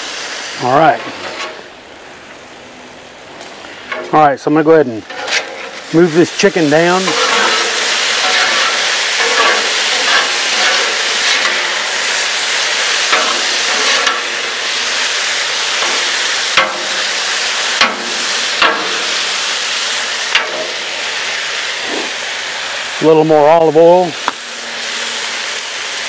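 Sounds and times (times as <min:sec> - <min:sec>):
chicken sizzling on griddle: 0:00.0 - 0:26.0
metal spatulas scraping griddle: 0:00.9 - 0:01.7, 0:05.0 - 0:15.0
spatulas clacking on griddle: 0:05.0 - 0:19.5, 0:20.2 - 0:20.9.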